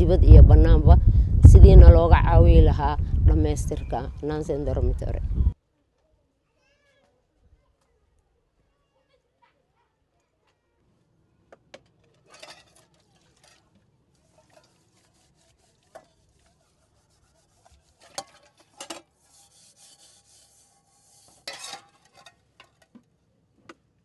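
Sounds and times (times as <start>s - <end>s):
pots knocking together: 11.7s - 13.8s
pots being scrubbed: 12.0s - 23.0s.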